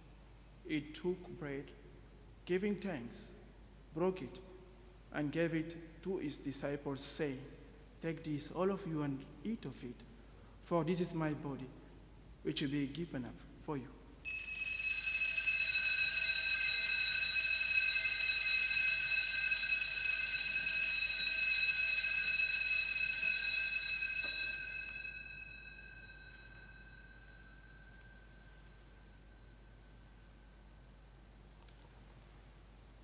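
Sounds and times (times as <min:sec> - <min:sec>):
altar bells ringing: 0:14.2 - 0:30.7.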